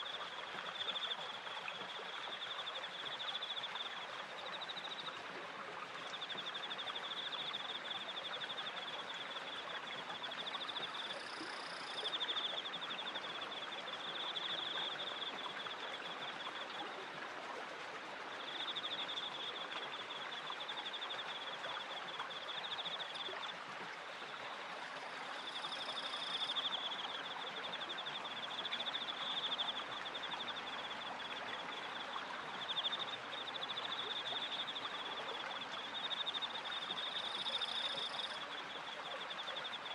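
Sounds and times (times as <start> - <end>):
crickets trilling: 25.4 - 29.9, 36.0 - 38.4.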